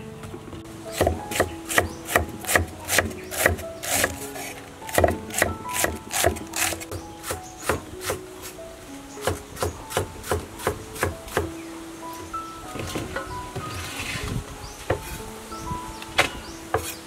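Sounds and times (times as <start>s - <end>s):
background music: 0.0s - 17.0s
cleaver chopping on wooden board: 0.9s - 4.2s, 4.9s - 8.2s, 9.2s - 11.5s.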